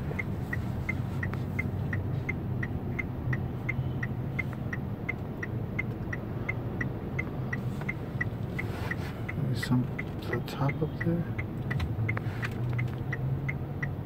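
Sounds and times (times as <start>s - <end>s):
engine hum and road noise: 0.0s - 14.0s
turn signal clicking: 0.0s - 14.0s.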